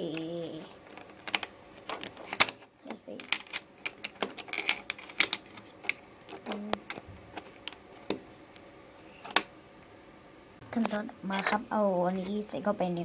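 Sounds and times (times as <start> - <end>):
plastic bricks clicking: 0.9 - 8.2.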